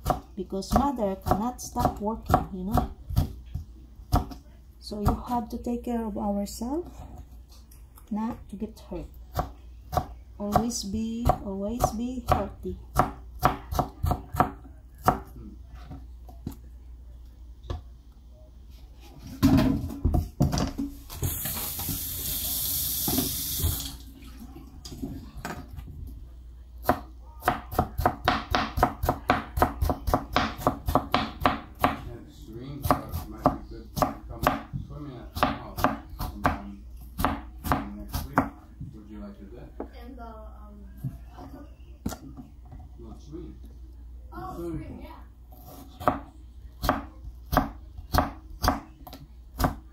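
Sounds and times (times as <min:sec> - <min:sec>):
knife chopping on plastic board: 0:26.8 - 0:32.1, 0:32.8 - 0:38.6, 0:45.6 - 0:49.8.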